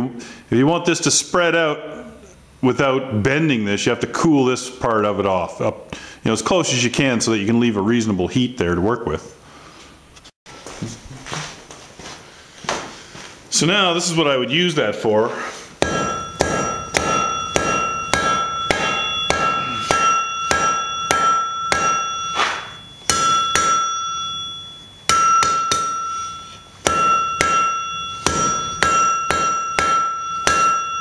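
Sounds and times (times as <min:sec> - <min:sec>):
anvil ringing: 0:15.8 - 0:31.0
hammer striking steel on anvil: 0:15.8 - 0:31.0.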